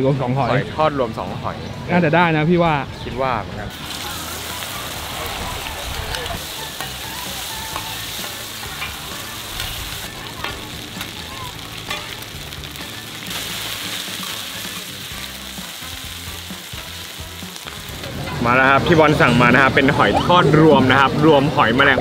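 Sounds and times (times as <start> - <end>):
omelette sizzling in hot oil: 3.7 - 18.6
metal spatula scraping pan: 11.8 - 12.5.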